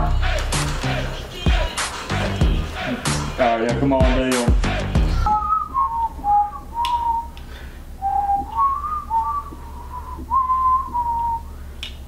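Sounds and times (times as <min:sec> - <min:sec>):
men whistling a tune: 0:04.6 - 0:07.4, 0:08.0 - 0:11.6.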